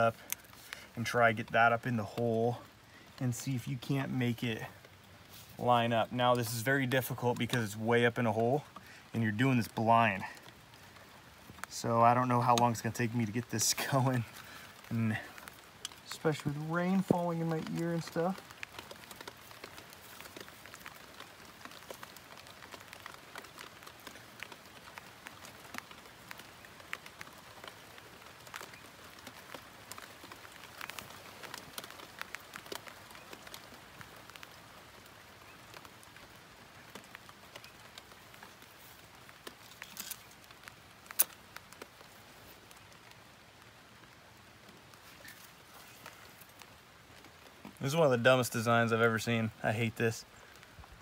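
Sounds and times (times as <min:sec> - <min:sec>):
light rain pattering: 0:00.0 - 0:51.0.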